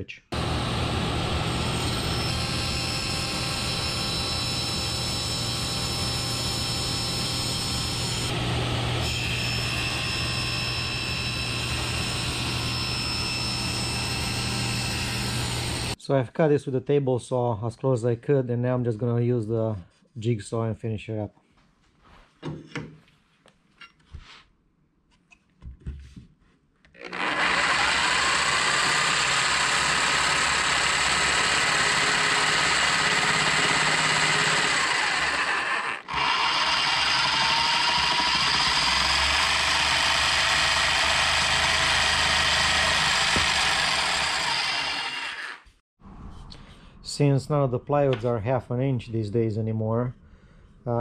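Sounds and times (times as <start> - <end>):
jigsaw cutting plywood: 0.4 - 16.0, 27.0 - 45.8.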